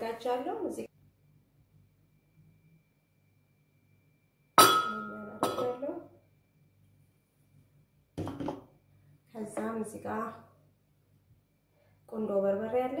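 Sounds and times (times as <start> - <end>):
ceramic bowl clinking against glass: 4.6 - 5.8
tableware clattering: 4.6 - 5.8.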